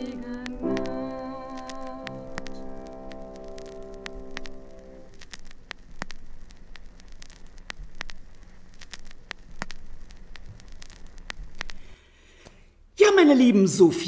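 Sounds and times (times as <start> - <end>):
held music chord: 0.0 - 5.1
crackling with sharp pops: 0.0 - 12.7.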